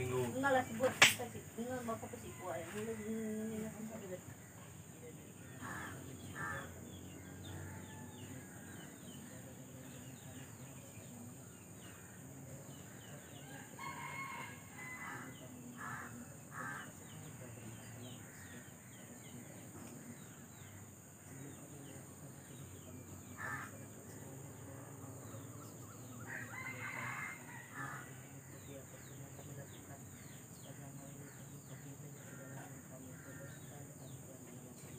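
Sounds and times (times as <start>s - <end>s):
rooster crowing: 7.3s - 8.8s, 13.4s - 15.5s, 26.2s - 28.2s.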